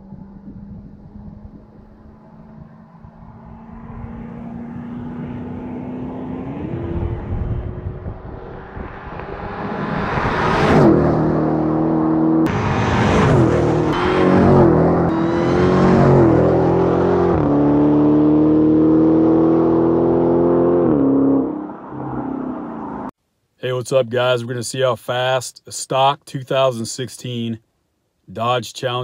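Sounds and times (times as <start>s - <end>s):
car engine at full throttle: 0.0s - 23.1s.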